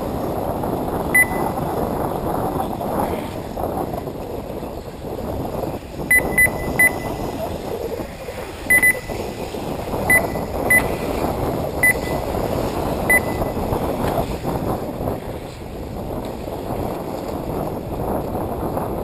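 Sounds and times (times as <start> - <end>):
steady noisy background: 0.0 - 19.0
short high beeps: 1.2 - 1.5, 6.1 - 7.4, 8.7 - 9.1, 10.1 - 10.9, 11.8 - 12.2, 13.1 - 13.5.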